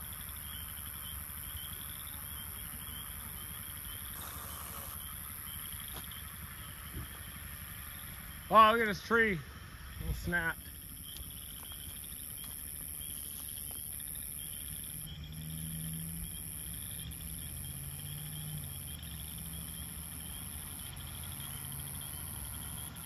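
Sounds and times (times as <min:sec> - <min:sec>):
night insects chirring: 0:00.0 - 0:23.0
vehicle engine idling: 0:00.0 - 0:23.0.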